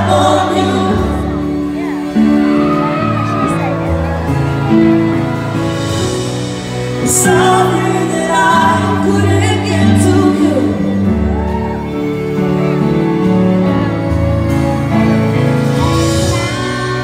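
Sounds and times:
woman singing into microphone: 0.0s - 2.0s, 7.0s - 11.2s.

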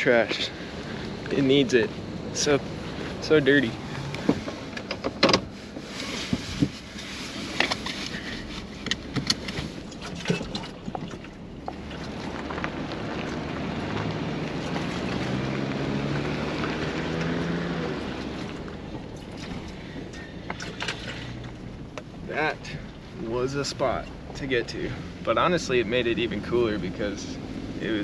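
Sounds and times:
truck engine revving: 0.0s - 4.9s, 11.6s - 28.0s
truck rattling over ruts: 0.0s - 28.0s
tyre and road noise: 0.0s - 28.0s.

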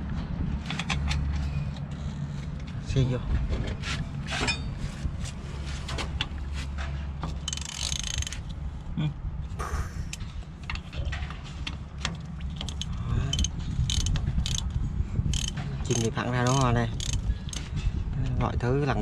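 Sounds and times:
truck mechanism low drone: 0.0s - 18.2s
metallic clicks and clanks: 0.1s - 4.8s, 5.9s - 8.6s, 10.1s - 17.9s.

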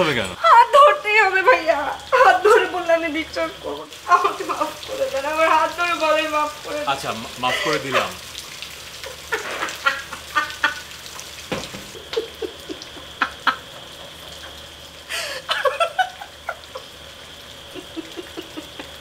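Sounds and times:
rain hissing: 0.0s - 19.0s
woman sobbing and whimpering: 0.4s - 2.7s, 7.5s - 8.2s, 15.1s - 16.7s, 17.8s - 19.0s.

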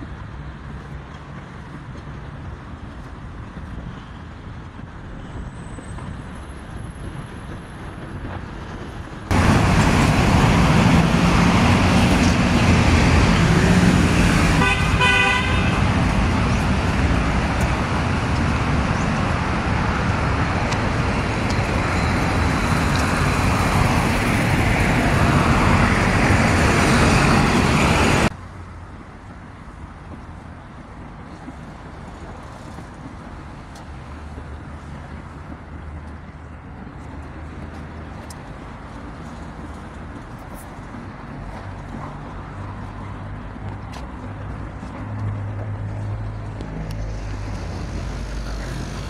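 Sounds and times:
busy road traffic: 0.0s - 49.0s
quieter street sound: 0.0s - 49.0s
car horn: 14.6s - 15.8s.

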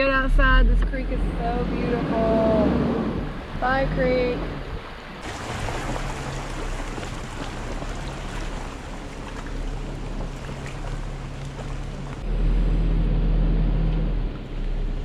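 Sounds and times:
low rumble: 0.0s - 15.0s
vehicle engine running: 0.0s - 15.0s
tyres splashing through water: 1.0s - 12.3s.

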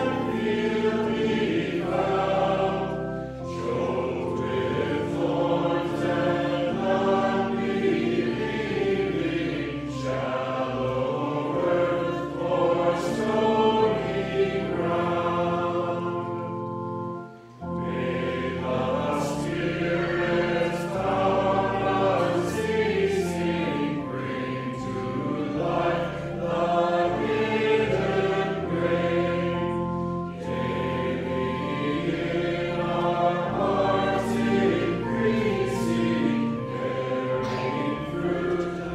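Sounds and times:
choir singing a hymn: 0.0s - 38.9s
sustained accompaniment: 0.0s - 38.9s.

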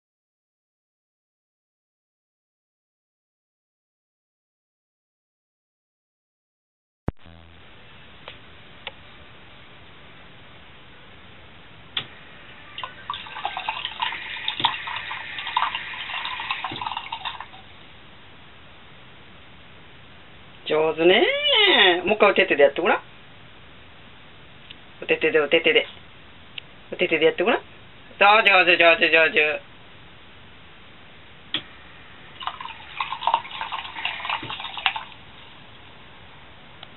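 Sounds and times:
faucet running into a basin: 12.6s - 17.7s, 32.4s - 35.3s
water splashing: 12.7s - 17.6s, 32.4s - 35.3s.

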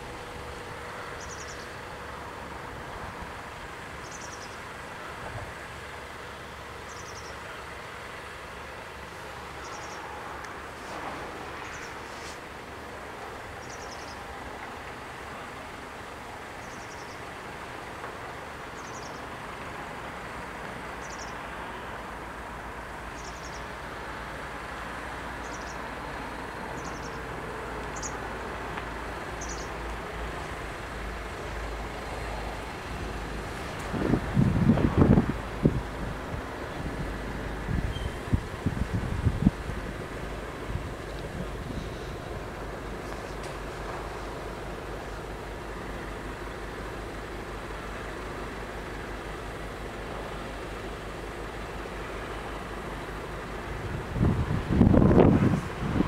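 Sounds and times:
open-air background noise: 0.0s - 56.0s
train rumbling: 0.0s - 56.0s.

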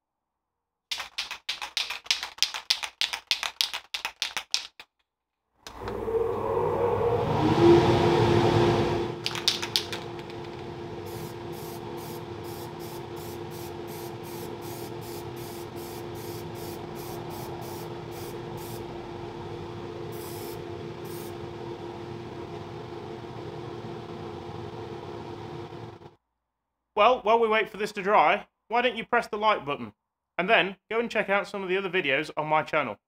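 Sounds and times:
spray paint can spraying: 0.9s - 4.9s, 9.2s - 18.8s, 20.2s - 21.3s
spray can rattling: 0.9s - 5.0s, 9.2s - 18.8s
steady hum: 5.7s - 26.1s.

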